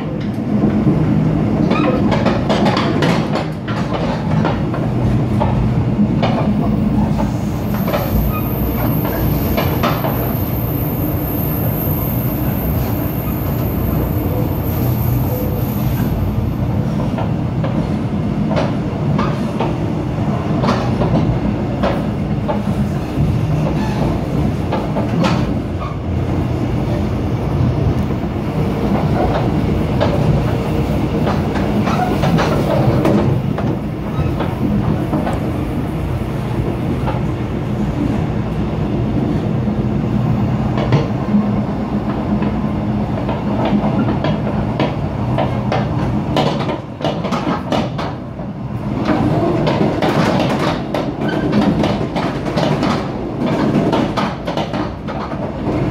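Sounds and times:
train wheels rumbling: 0.0 - 55.9
wheels clicking over rail joints: 43.2 - 48.2, 49.0 - 55.9.

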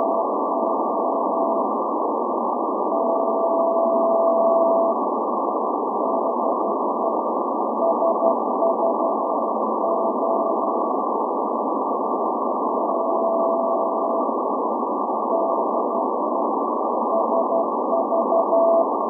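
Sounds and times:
static hiss: 0.0 - 19.0
morse code beeps: 7.8 - 10.6, 12.8 - 14.2, 17.1 - 18.9.

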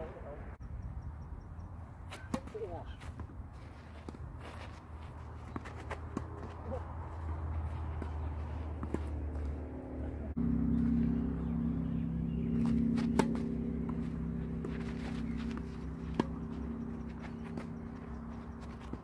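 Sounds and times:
tennis racket hitting ball: 2.1 - 3.2, 7.9 - 9.6, 12.6 - 19.0
light footsteps: 2.1 - 10.2, 12.6 - 19.0
steady mechanical hum: 7.1 - 19.0.

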